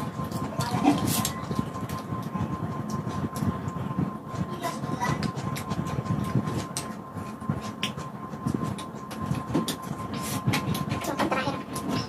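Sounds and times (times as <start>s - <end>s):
close chewing of food: 5.1s - 11.8s.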